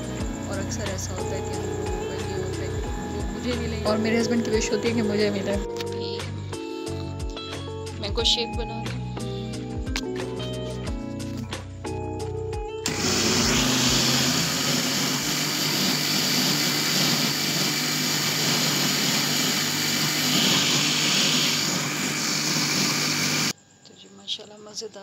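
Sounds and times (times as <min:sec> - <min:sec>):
electric blender running: 0:00.0 - 0:05.6, 0:12.8 - 0:23.6
background music: 0:00.0 - 0:14.6.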